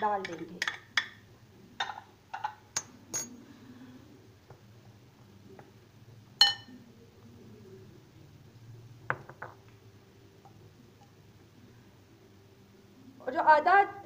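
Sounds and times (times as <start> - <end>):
metal spoon clinking glass bowl: 1.8 - 3.3, 6.4 - 6.7.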